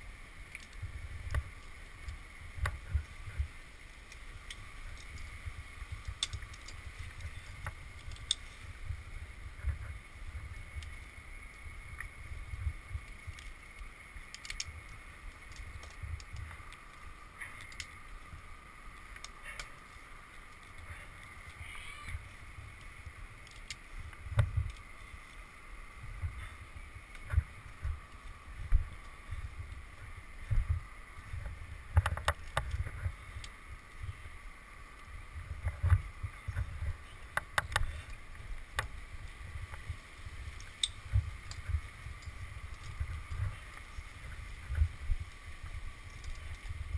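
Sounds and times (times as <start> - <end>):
wind and handling rumble: 0.0 - 46.9
climbing gear clicks and knocks: 4.0 - 8.7, 12.9 - 18.4, 22.8 - 25.4, 30.5 - 33.5, 35.5 - 39.0.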